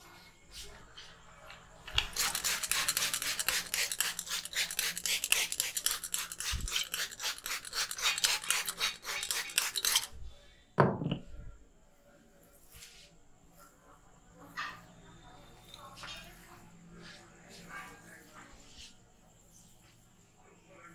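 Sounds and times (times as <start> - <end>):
rapid rhythmic rubbing strokes: 2.0 - 10.1.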